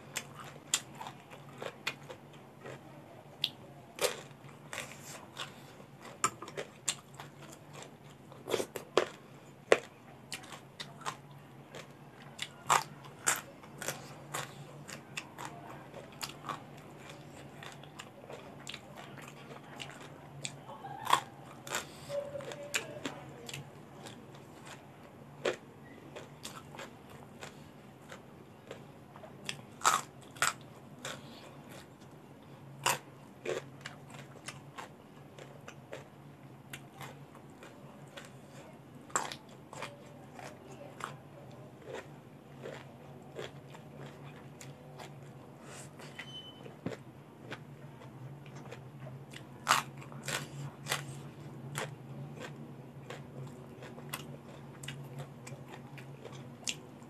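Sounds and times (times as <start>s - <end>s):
crunching raw vegetables: 0.1s - 24.8s, 29.4s - 32.1s, 36.7s - 57.0s
wet chewing: 36.7s - 57.0s.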